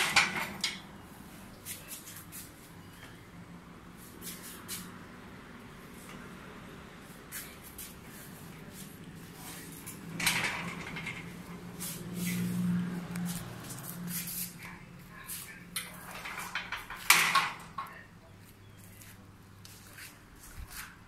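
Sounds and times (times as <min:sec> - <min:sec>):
metal gate clanks: 0:00.0 - 0:00.9, 0:09.8 - 0:11.7, 0:15.8 - 0:18.0
metal gate rolling rumble: 0:00.0 - 0:01.3, 0:08.1 - 0:14.4, 0:15.3 - 0:18.2.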